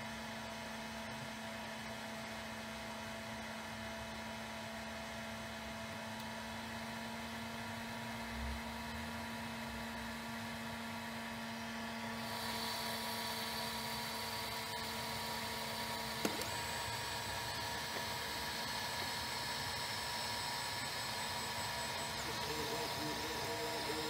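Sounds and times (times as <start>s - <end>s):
faint electrical whines: 12.2s - 24.0s
printer fan hiss: 12.2s - 24.0s.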